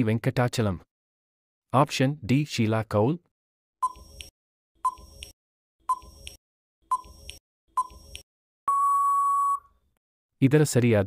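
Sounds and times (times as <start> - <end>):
timer ticking blips: 3.8 - 9.6.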